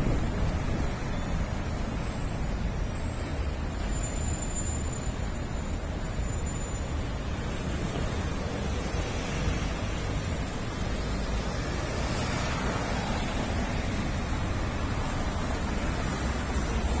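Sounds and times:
wind buffeting microphone: 0.0 - 1.1
passing street traffic: 0.0 - 17.0.

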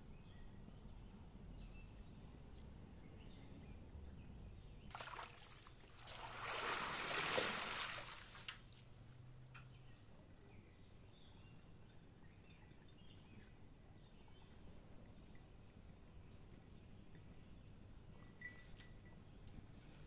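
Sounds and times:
water sloshing and splashing: 4.9 - 9.2.

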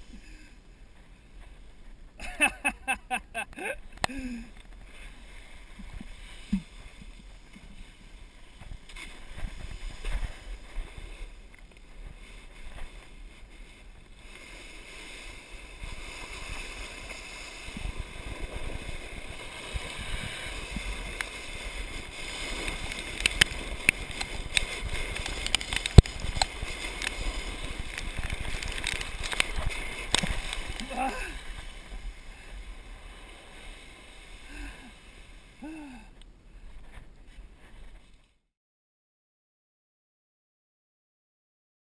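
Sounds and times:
board scraping over gravel: 4.5 - 35.6
wind on microphone: 15.8 - 32.8.

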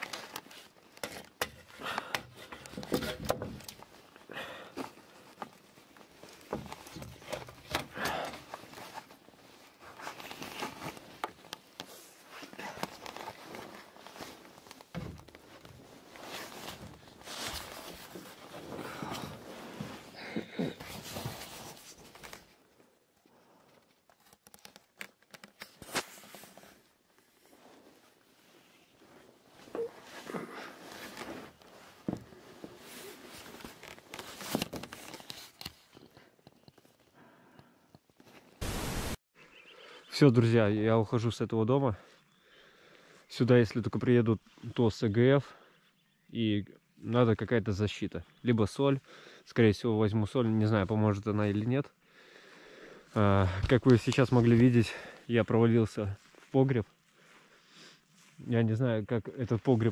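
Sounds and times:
knocks and scrapes on wooden boards: 1.0 - 3.8
clothing rustling on microphone: 8.4 - 22.8, 24.0 - 36.0.

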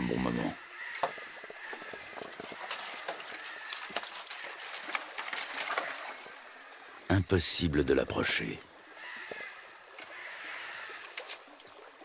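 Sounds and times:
dry branches cracking and rustling: 0.9 - 7.1, 8.9 - 12.0.

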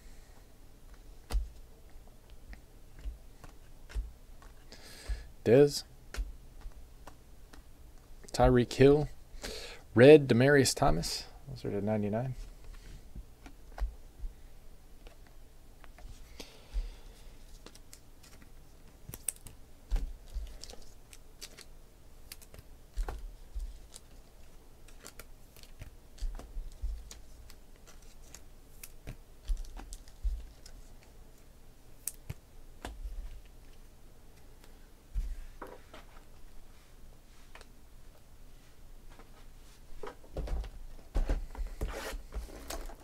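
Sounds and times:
cards clicking and tapping: 2.3 - 5.3, 6.1 - 8.1, 17.6 - 24.2, 24.8 - 31.1.

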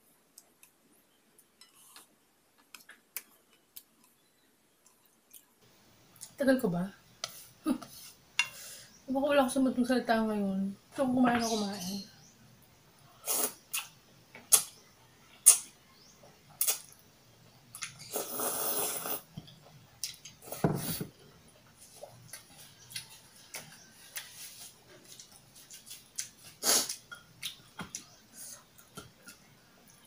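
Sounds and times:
mouth clicks and smacks: 13.3 - 14.8
noodle slurp: 18.0 - 19.3.

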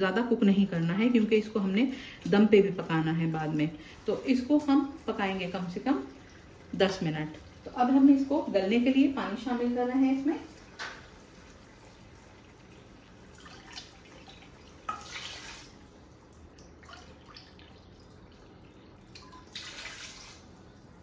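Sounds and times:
water pouring into a pot: 4.8 - 21.0.

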